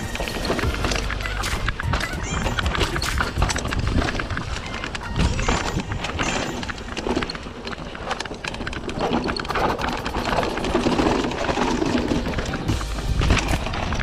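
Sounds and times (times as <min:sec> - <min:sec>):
mountain bike rattling: 0:00.0 - 0:14.0
tyres crunching over stones: 0:00.0 - 0:14.0
low rumble: 0:10.0 - 0:14.0.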